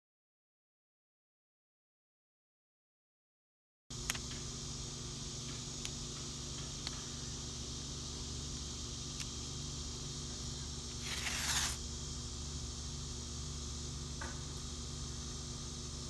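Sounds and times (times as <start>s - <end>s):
steady low hum: 3.9s - 16.0s
tape ripping off roll: 11.0s - 11.8s.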